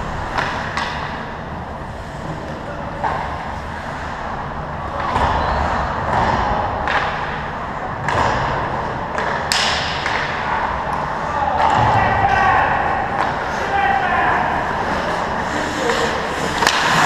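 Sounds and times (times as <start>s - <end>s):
hockey sticks clacking: 0.1s - 1.4s, 4.9s - 17.0s
skate blades scraping ice: 14.6s - 17.0s.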